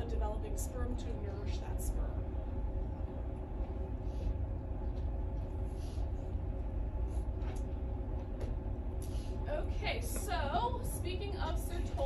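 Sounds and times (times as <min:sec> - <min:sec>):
low room rumble: 0:00.0 - 0:12.0.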